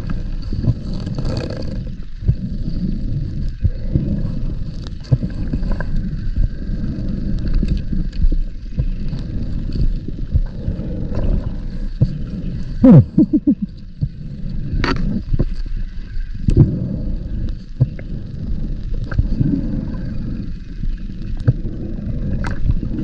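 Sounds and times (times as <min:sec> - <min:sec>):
exhaled bubbles gurgling: 0:00.0 - 0:23.0
diver breathing through regulator: 0:16.3 - 0:23.0.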